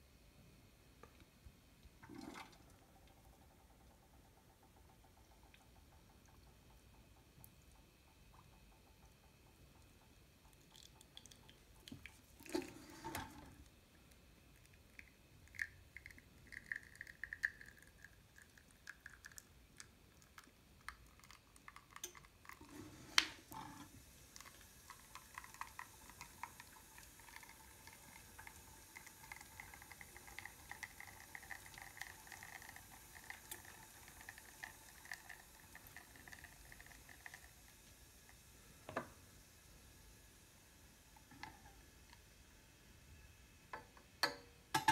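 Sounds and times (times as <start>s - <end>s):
espresso dripping into cup: 14.6s - 22.8s, 24.3s - 37.6s.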